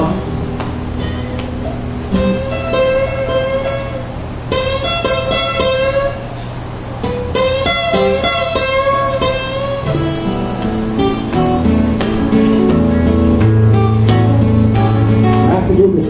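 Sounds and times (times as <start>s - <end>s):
acoustic guitars picking: 0.0s - 16.0s.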